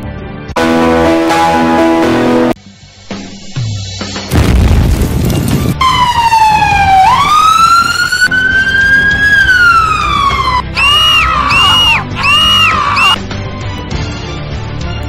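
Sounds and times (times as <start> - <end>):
emergency siren wailing: 5.8 - 13.2.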